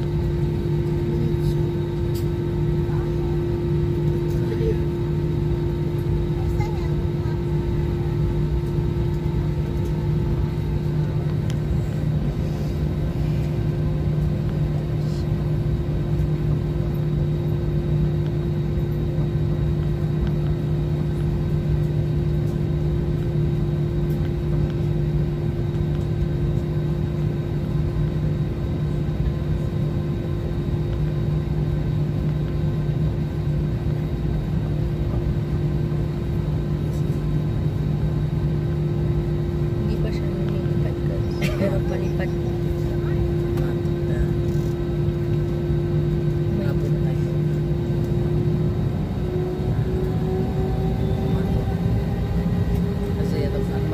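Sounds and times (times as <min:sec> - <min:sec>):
airliner cabin drone: 0:00.0 - 0:53.9.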